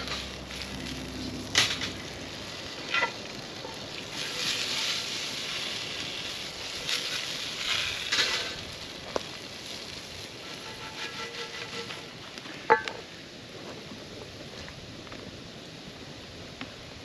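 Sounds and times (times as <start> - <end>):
potatoes sizzling in skillet: 0.0 - 17.0
spatula knocking and scraping pan: 10.5 - 12.1.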